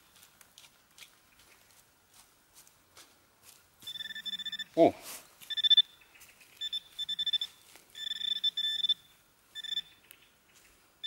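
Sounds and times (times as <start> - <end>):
metal detector beeping: 3.8 - 4.8, 5.4 - 6.0, 6.6 - 10.0.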